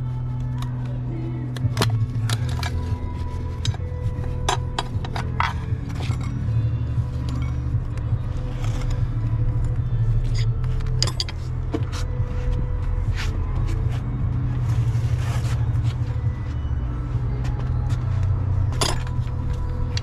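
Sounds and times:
metallic clinks of tools: 18.7s - 19.3s.

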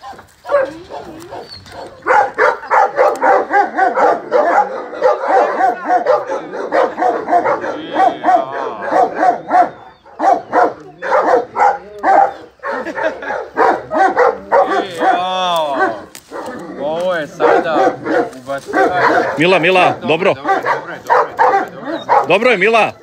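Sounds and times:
dog whining and yelping: 0.0s - 15.2s, 21.4s - 22.3s.

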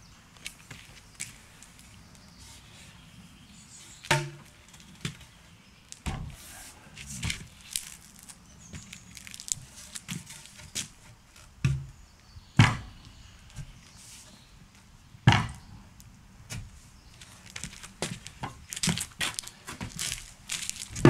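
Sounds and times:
timber beam knocking and thudding: 11.6s - 11.9s, 12.6s - 12.9s.

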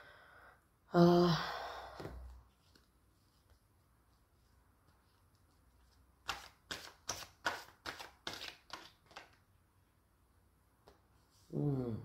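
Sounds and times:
cards being shuffled: 4.8s - 9.4s.

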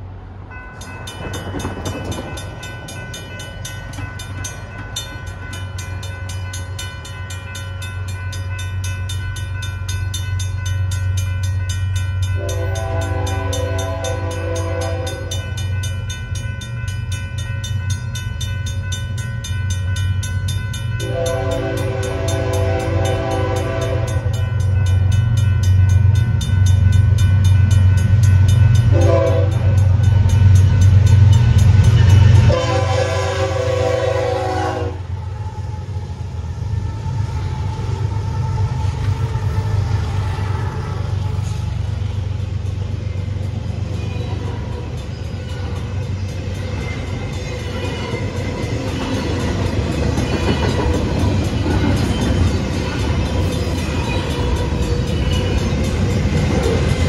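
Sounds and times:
railroad crossing bells: 0.0s - 57.0s
train horn blasts: 12.4s - 15.4s, 21.0s - 24.4s, 28.9s - 29.9s, 32.3s - 41.8s.

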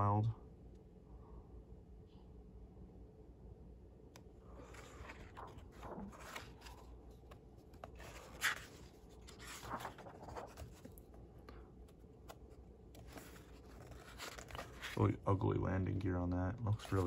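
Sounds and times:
paper pages rustling: 4.5s - 15.2s, 16.7s - 17.0s.

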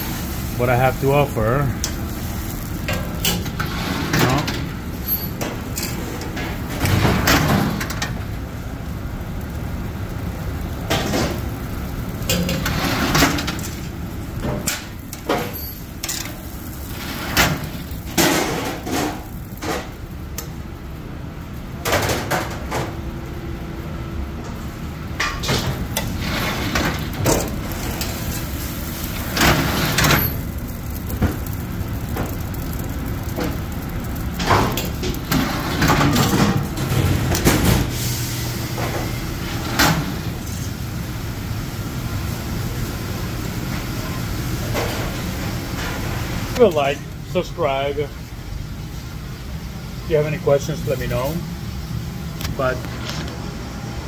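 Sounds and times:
steady background noise: 0.0s - 54.0s.

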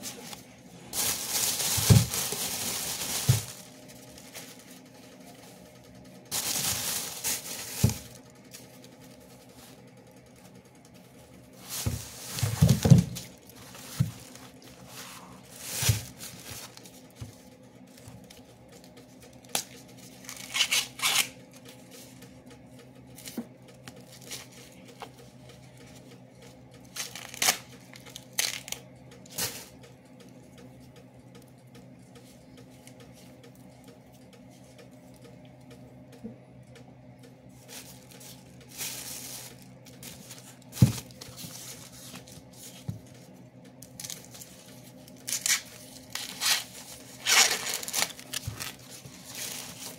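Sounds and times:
corn husks tearing and rustling: 0.0s - 5.0s, 6.3s - 8.9s, 11.6s - 17.0s, 26.9s - 28.8s, 43.9s - 49.9s
plastic bag crinkling: 0.0s - 9.8s, 11.6s - 17.3s, 37.6s - 43.2s, 43.8s - 49.9s.

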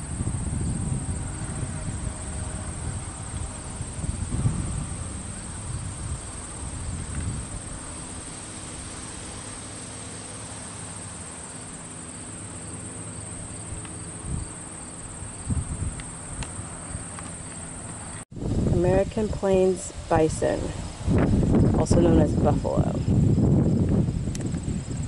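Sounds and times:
wind rumble on microphone: 0.0s - 9.8s, 13.4s - 25.0s
crickets chirping: 0.0s - 25.0s.

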